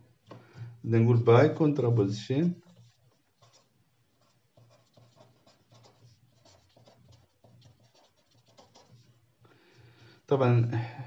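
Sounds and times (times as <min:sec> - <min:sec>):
pen scratching on paper: 0:02.6 - 0:09.2.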